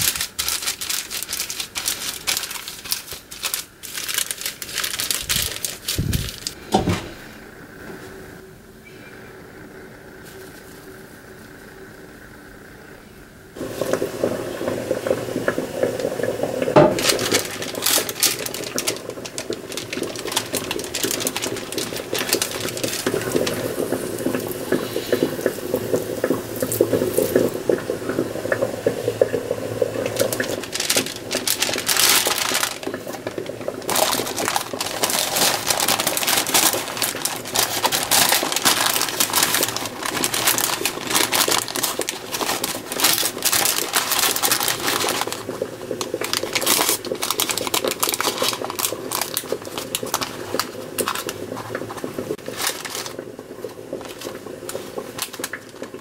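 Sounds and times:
parchment paper rustling: 0.0s - 6.6s, 10.2s - 10.9s, 16.8s - 25.5s, 29.8s - 56.0s.

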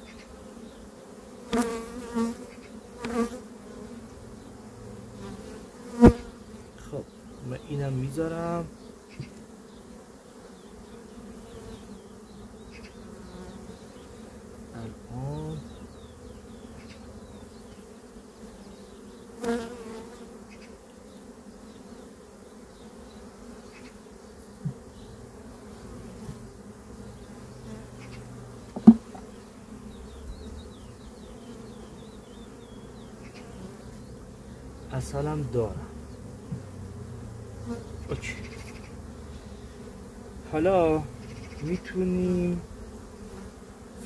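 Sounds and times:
bees buzzing: 0.0s - 44.0s
sharp knock: 28.8s - 29.2s.

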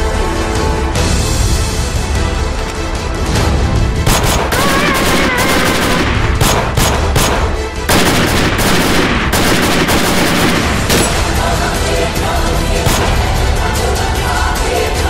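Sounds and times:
background music: 0.0s - 15.0s
gunshots: 4.0s - 11.8s, 12.9s - 13.4s.

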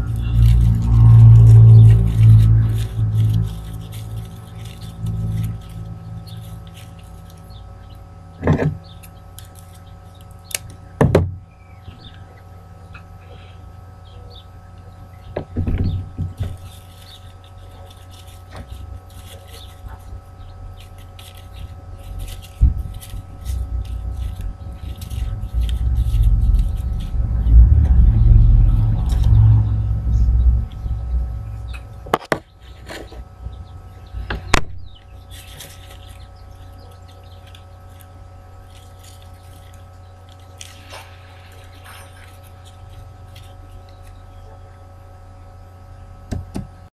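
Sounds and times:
low rumble: 0.0s - 7.8s, 17.9s - 36.7s
handling noises: 0.0s - 12.3s, 14.7s - 44.9s
steady electrical hum: 0.0s - 46.9s.

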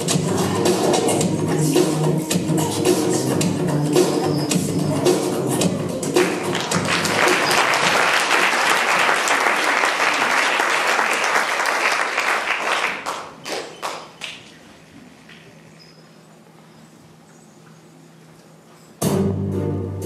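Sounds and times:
audience applauding: 6.2s - 14.5s.

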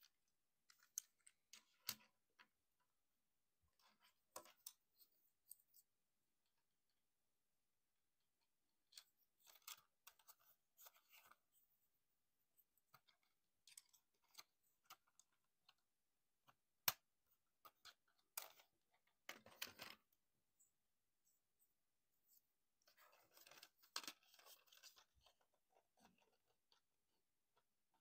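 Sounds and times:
plastic toy parts clicking and scraping: 8.9s - 11.4s, 22.9s - 26.9s.

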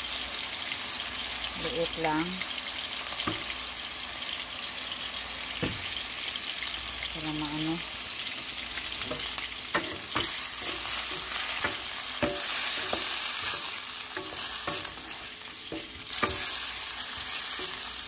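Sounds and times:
chicken and onions sizzling in oil: 0.0s - 18.0s
wooden spatula scraping pan: 9.0s - 17.9s.

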